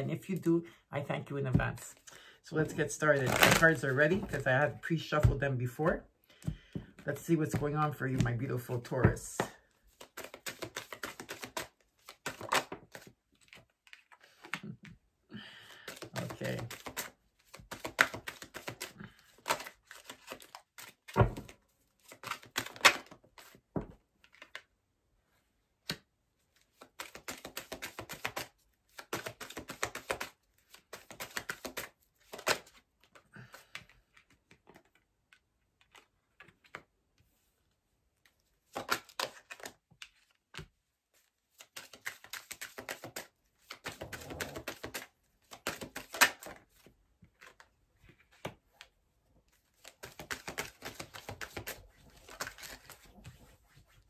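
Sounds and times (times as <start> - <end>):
cards being shuffled: 1.5 - 5.4, 6.4 - 15.0, 15.8 - 24.7, 25.8 - 36.9, 38.2 - 48.9, 49.5 - 54.0
rapid clicking of cards: 9.9 - 14.7, 15.8 - 23.6, 26.7 - 32.8, 41.6 - 46.6, 49.8 - 53.1.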